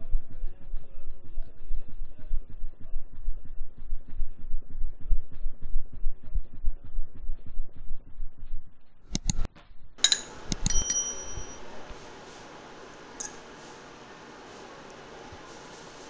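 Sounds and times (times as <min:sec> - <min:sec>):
quick clicks: 0:09.1 - 0:10.8
small clink: 0:10.0 - 0:11.7, 0:13.2 - 0:13.4
faint steady hiss: 0:10.0 - 0:16.0
notification bell ding: 0:10.1 - 0:11.7.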